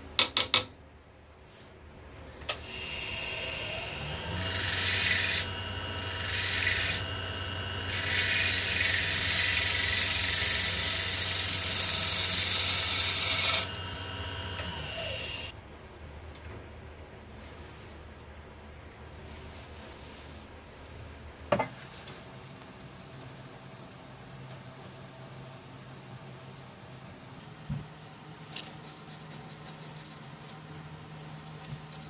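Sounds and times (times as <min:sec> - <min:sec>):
turning tool cutting wood: 0:02.6 - 0:15.5
wood lathe motor: 0:02.6 - 0:15.5.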